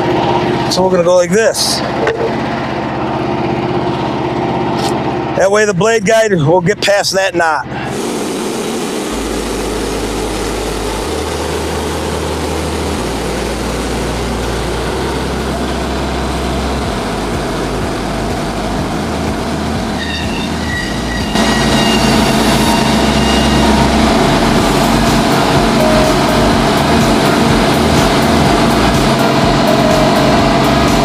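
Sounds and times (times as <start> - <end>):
gasoline engine running under load: 0.0 - 31.0
high-pitched whine: 6.7 - 31.0.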